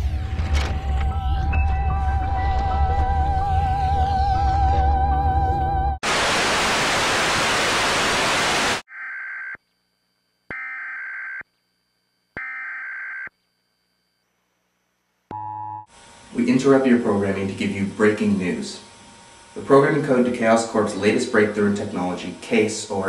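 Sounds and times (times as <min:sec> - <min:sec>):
music: 0:00.0 - 0:06.0
loud static hiss: 0:06.0 - 0:08.8, 0:15.9 - 0:23.0.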